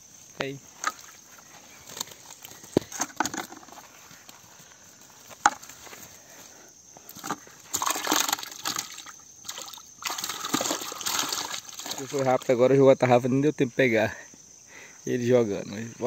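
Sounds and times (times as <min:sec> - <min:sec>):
cast net splashing into water: 0:07.2 - 0:12.5.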